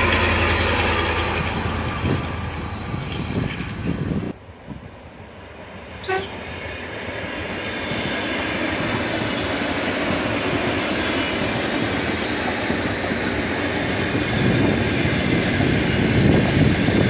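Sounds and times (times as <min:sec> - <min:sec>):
rumble of passing rail vehicle: 0:00.0 - 0:17.0
train running noise: 0:00.0 - 0:17.0
train horn toot: 0:06.0 - 0:06.4.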